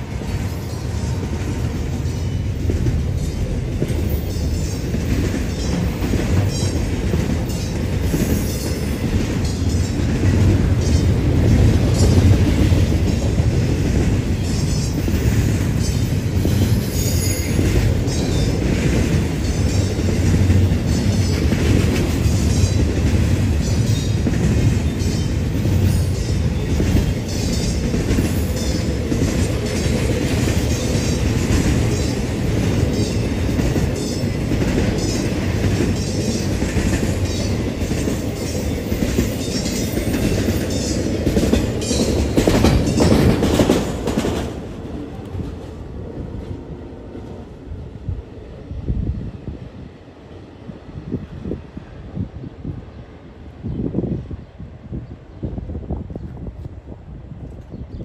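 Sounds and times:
wheels clicking over rail joints: 0.0s - 45.7s
steel wheels rumbling on rail: 0.0s - 58.0s.

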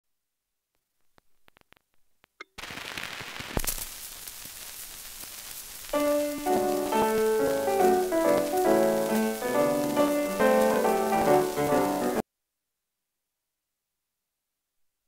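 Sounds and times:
record surface hiss and crackle: 0.4s - 12.2s
instrumental song introduction: 6.0s - 12.2s.

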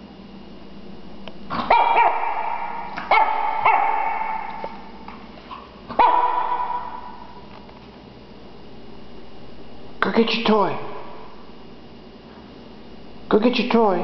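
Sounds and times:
puppy barking high-pitched yaps: 1.5s - 4.8s, 5.9s - 7.4s.

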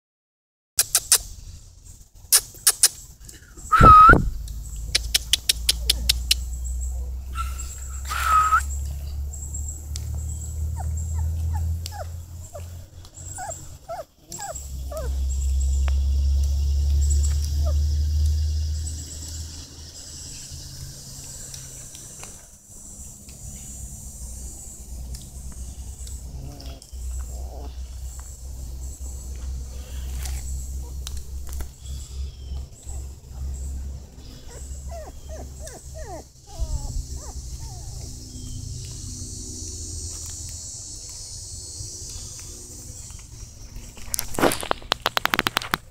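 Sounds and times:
quick clicks: 0.8s - 1.3s, 2.3s - 3.0s, 4.1s - 6.5s
puppies whimpering: 7.4s - 8.7s, 10.6s - 15.4s, 34.4s - 38.6s.

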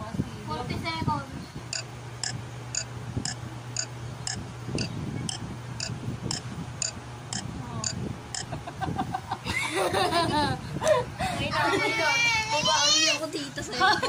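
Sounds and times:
low steady hum: 0.0s - 12.3s
high-pitched clock ticking: 1.7s - 8.5s.

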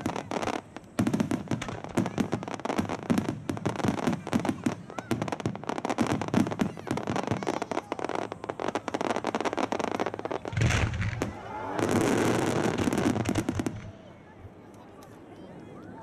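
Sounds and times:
rapid crackle of fireworks: 0.0s - 16.0s
heavy firework boom: 10.5s - 14.0s.

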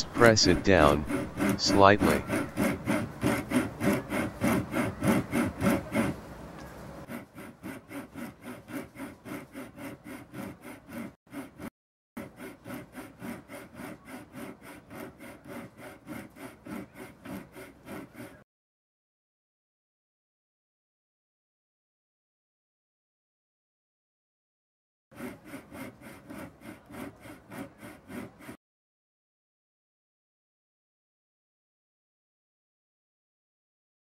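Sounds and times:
hand saw cutting plastic: 0.0s - 6.2s, 7.0s - 18.4s, 25.2s - 28.6s.

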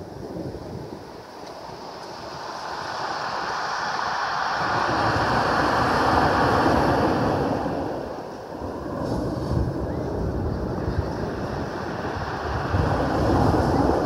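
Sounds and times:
wave crashing on pebbles: 1.9s - 9.8s, 11.2s - 14.0s.

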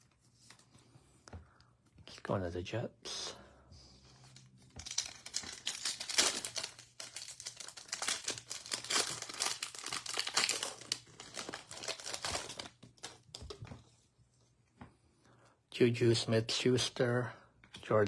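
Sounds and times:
foil wrapper tearing and crinkling: 4.8s - 13.4s.

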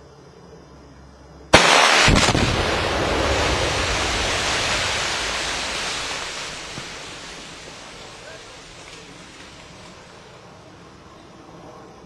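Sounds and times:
explosive charge blast: 1.5s - 8.3s
sharp crack: 1.5s - 10.0s
long rushing noise: 1.6s - 10.2s.

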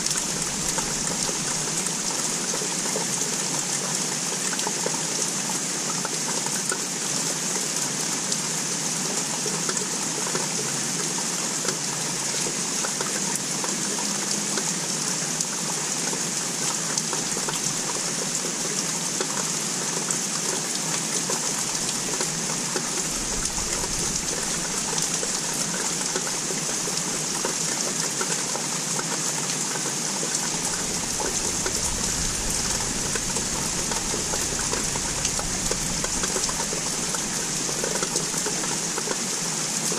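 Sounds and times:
steady rain falling: 0.0s - 39.9s
faint low rumble: 30.5s - 38.7s.

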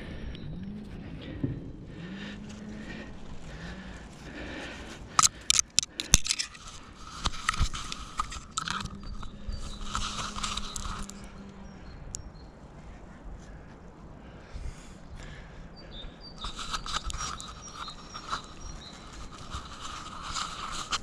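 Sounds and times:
scraping and rustling against bark: 0.8s - 12.2s, 16.4s - 21.0s
branches cracking: 2.0s - 11.5s.

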